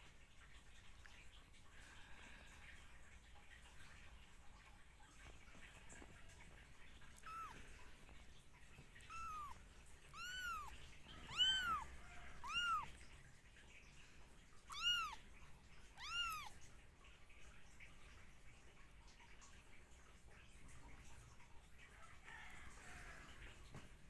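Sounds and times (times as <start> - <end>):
kitten mewing: 7.2 - 7.8, 9.0 - 13.0, 14.7 - 15.2, 15.9 - 16.6.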